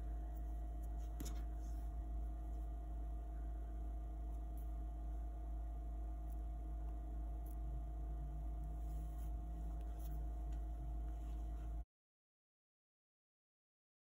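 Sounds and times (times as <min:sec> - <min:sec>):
low electrical hum: 0:00.0 - 0:11.9.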